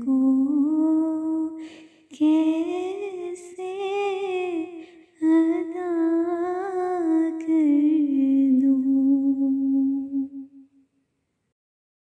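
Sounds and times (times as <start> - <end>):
woman singing unaccompanied: 0.0 - 10.6.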